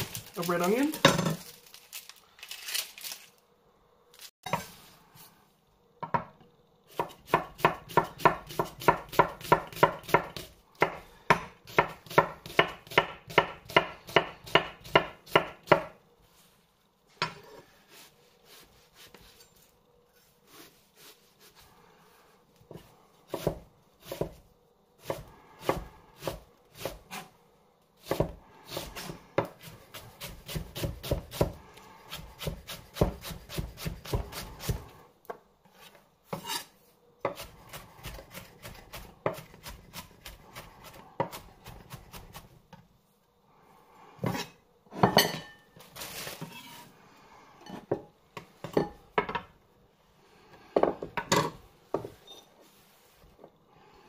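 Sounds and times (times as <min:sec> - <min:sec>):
knife chopping on board: 0:07.0 - 0:16.0, 0:22.8 - 0:24.4, 0:28.0 - 0:34.8.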